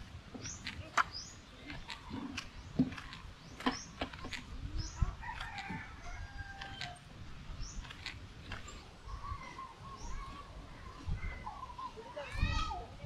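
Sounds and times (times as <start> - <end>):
rooster crowing: 5.2 - 7.0.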